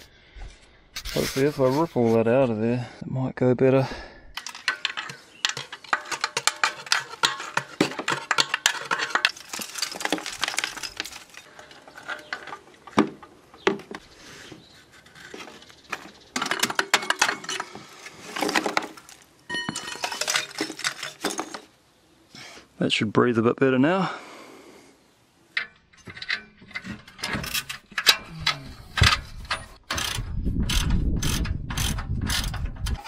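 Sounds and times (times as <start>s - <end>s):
screwdriver scraping metal: 4.4s - 12.6s, 26.0s - 33.0s
ceramic pieces rattling into bucket: 4.4s - 12.9s, 18.3s - 21.7s.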